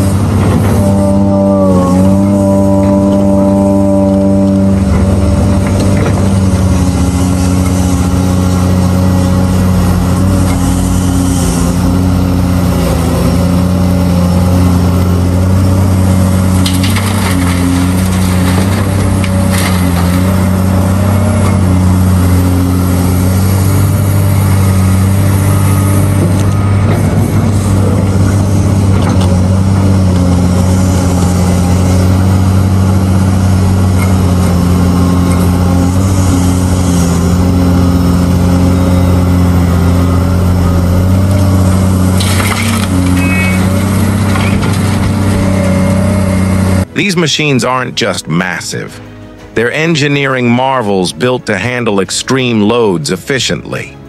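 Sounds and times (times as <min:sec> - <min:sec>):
excavator diesel engine droning: 0:00.0 - 0:54.0
rock crunching and scraping: 0:16.4 - 0:21.8, 0:41.2 - 0:46.9.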